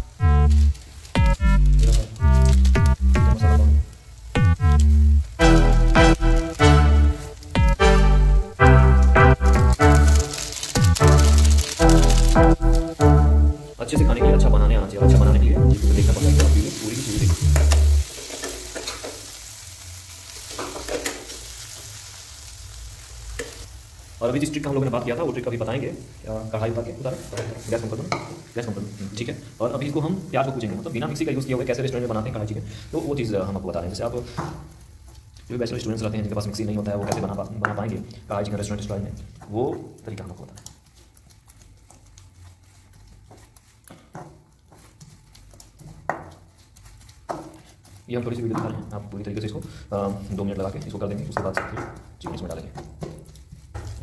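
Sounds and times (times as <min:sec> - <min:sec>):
masala sizzling in a pan: 0:00.0 - 0:54.0
spatula scraping and stirring: 0:04.6 - 0:13.9, 0:15.3 - 0:22.3, 0:26.1 - 0:54.0
pestle pounding in a pan: 0:05.4 - 0:14.2, 0:15.0 - 0:19.2, 0:42.6 - 0:48.9, 0:50.7 - 0:54.0.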